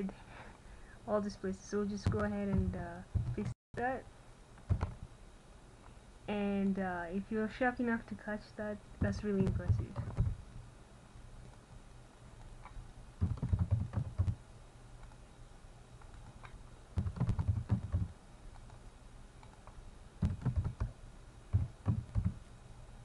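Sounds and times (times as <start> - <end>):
faint low hum: 0.0 - 23.0
typing on computer keyboard: 9.4 - 10.3, 13.2 - 14.4, 17.0 - 18.8, 19.4 - 20.9, 21.5 - 22.4.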